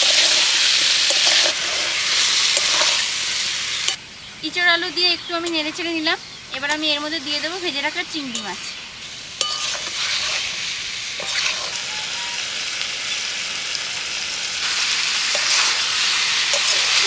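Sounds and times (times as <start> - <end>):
spatula stirring and scraping: 0.0 - 3.2, 8.3 - 12.4, 14.6 - 17.0
food sizzling in a pan: 0.0 - 4.1, 4.7 - 17.0.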